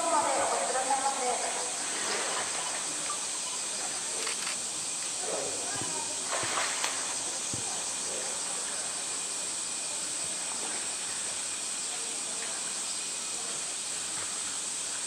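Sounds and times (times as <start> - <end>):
insect chorus drone: 0.0 - 15.0
water splashes and knocks: 5.7 - 7.8.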